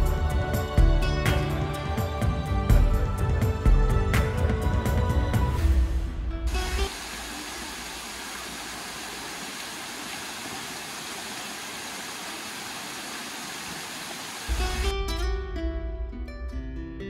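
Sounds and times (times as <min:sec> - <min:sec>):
steady hiss: 0:06.5 - 0:14.9.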